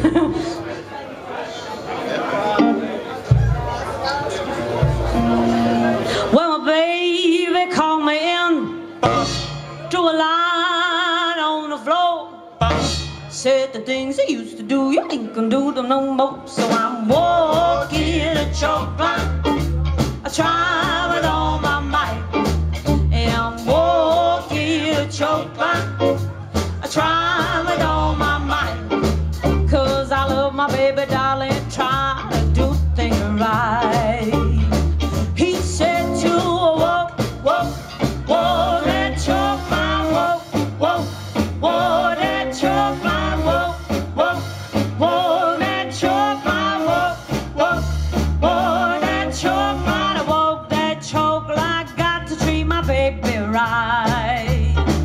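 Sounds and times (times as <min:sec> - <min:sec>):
rockabilly band playing: 0:01.9 - 0:11.8, 0:12.5 - 0:55.0
person singing: 0:09.9 - 0:55.0.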